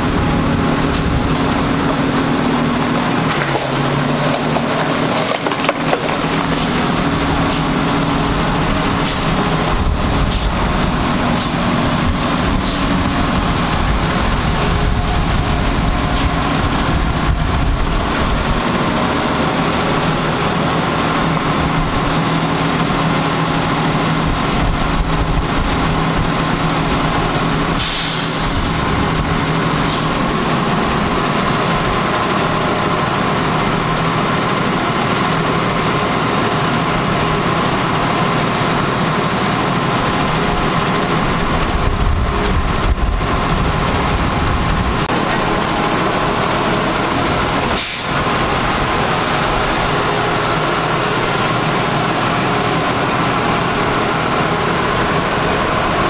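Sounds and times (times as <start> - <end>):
truck diesel engine running: 0.0 - 56.0
air brakes hissing: 6.5 - 7.9, 8.9 - 9.6, 10.2 - 11.8, 12.4 - 13.2, 16.1 - 16.5, 27.7 - 28.9, 29.8 - 30.3, 47.7 - 48.5.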